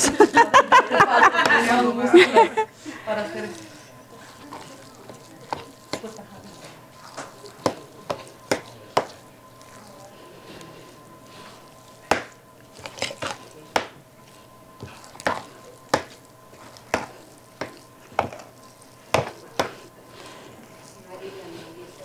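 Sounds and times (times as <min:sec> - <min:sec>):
spoon scraping dough: 0:02.6 - 0:22.0.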